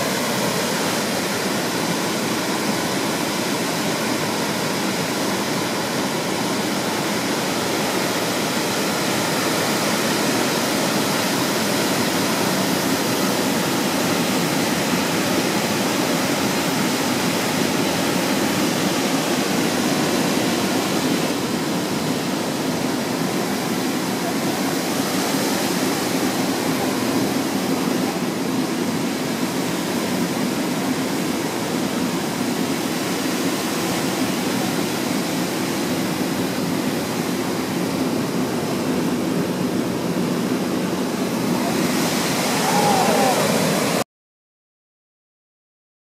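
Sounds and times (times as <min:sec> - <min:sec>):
flowing water rushing: 0:00.0 - 0:44.0.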